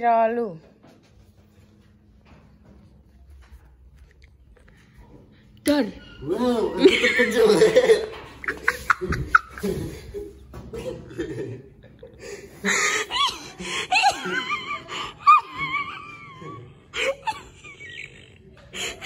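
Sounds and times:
person laughing and squealing: 0:06.2 - 0:11.3.

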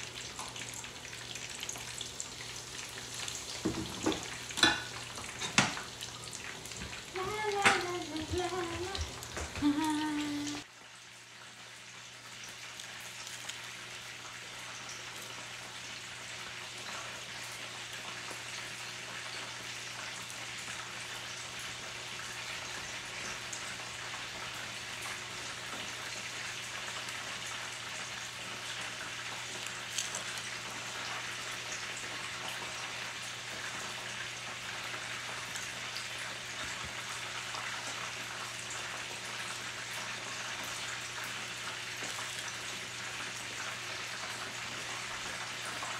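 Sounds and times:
cutlets sizzling in hot oil: 0:00.0 - 0:45.9.

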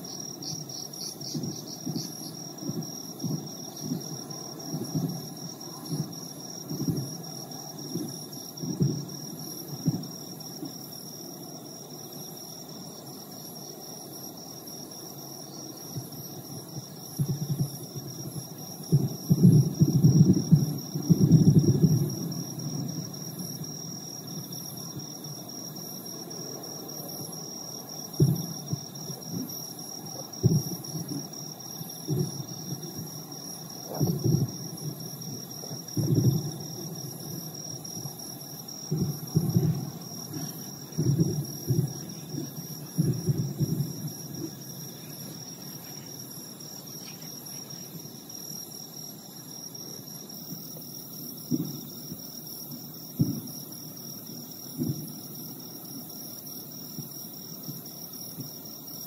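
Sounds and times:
distant fireworks booming: 0:00.0 - 0:10.9, 0:15.9 - 0:25.2, 0:26.1 - 0:46.4, 0:50.5 - 0:53.7, 0:54.6 - 0:55.3
insects trilling: 0:00.0 - 0:59.0.

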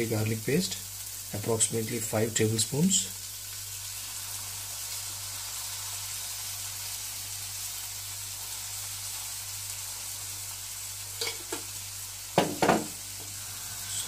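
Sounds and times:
vegetables sizzling in hot oil: 0:00.0 - 0:14.0.

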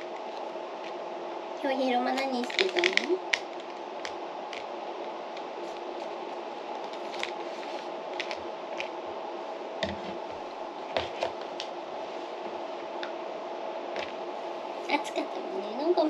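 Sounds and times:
steady background hum: 0:00.0 - 0:16.0
chopsticks tapping plastic pouch: 0:02.2 - 0:04.7.

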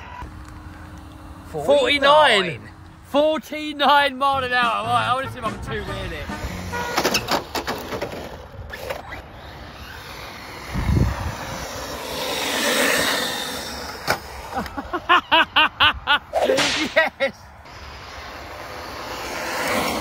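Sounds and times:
rc truck motor running: 0:05.9 - 0:15.0, 0:17.7 - 0:20.0
short pitched motor bursts: 0:08.7 - 0:14.6.

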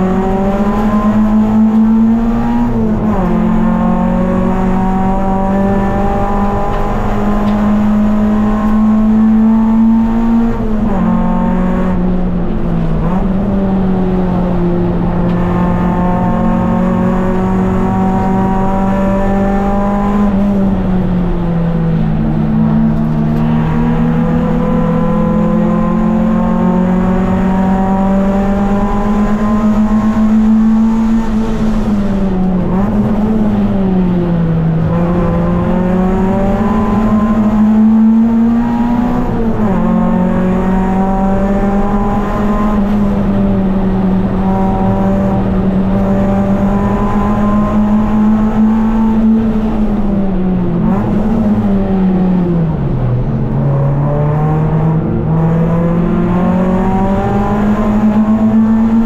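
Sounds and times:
race car engine at high revs: 0:00.0 - 0:59.0.

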